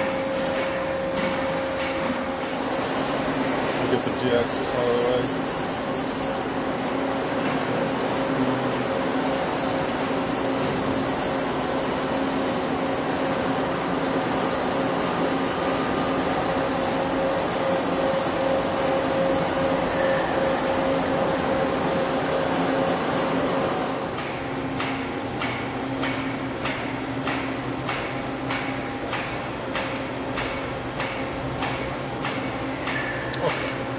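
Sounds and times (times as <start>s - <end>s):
lathe motor whine: 0.0s - 6.6s, 9.1s - 24.5s.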